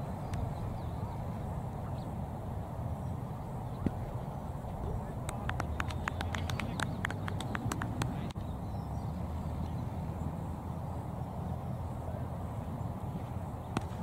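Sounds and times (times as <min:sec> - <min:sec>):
sharp claps or clicks: 0:05.2 - 0:08.4.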